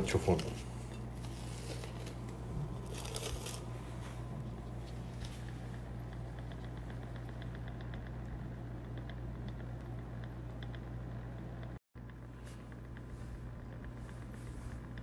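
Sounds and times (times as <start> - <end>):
faint rustling and handling: 0.0 - 5.9
low electrical hum: 0.0 - 15.0.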